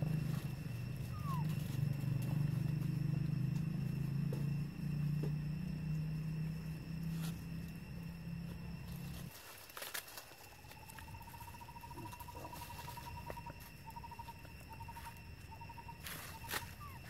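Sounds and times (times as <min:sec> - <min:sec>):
rustles in dry leaves: 0:00.0 - 0:03.0, 0:07.0 - 0:17.0
faint outdoor ambience: 0:00.0 - 0:17.0
steady high hum: 0:00.0 - 0:17.0.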